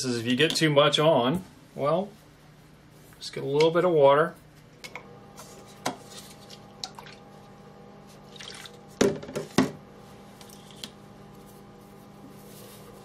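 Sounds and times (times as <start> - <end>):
paintbrush splashing in water cup: 8.2 - 8.8.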